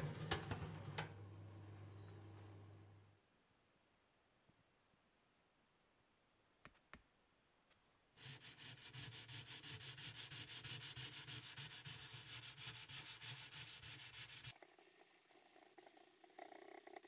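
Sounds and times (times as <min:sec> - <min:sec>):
sandpaper rubbing on metal: 0:08.2 - 0:14.5.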